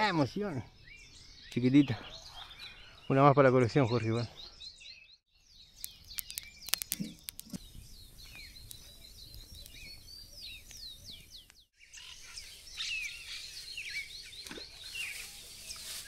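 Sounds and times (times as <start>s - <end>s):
birds chirping: 0.0s - 16.0s
sharp clicks and knocks: 5.8s - 7.6s.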